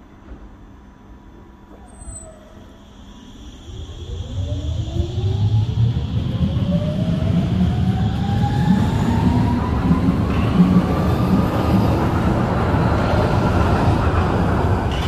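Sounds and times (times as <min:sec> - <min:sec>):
wheels rumbling on rails: 0:04.9 - 0:15.0.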